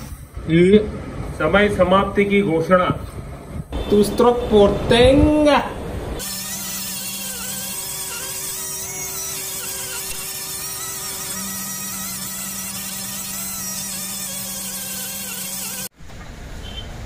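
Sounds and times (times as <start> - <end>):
rotary grinder grinding metal: 6.2 - 16.0.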